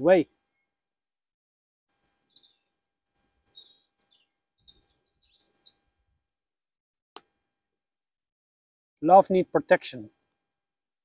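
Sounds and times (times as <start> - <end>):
faint birds chirping: 1.9 - 6.4.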